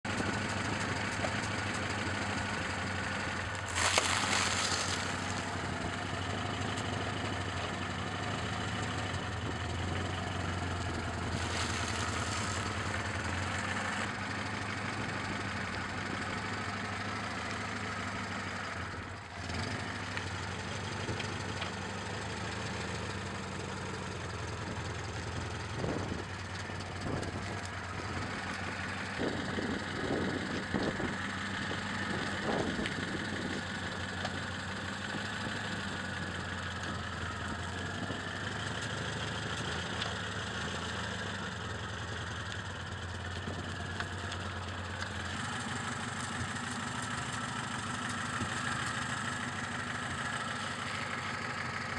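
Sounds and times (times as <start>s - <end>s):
car engine idling: 0.0s - 51.9s
snack packets crushed under tyre: 3.6s - 5.5s.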